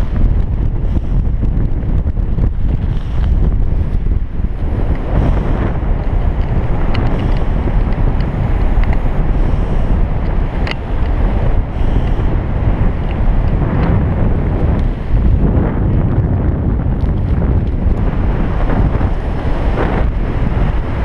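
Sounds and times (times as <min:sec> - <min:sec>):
wind rushing over microphone: 0:00.0 - 0:21.0.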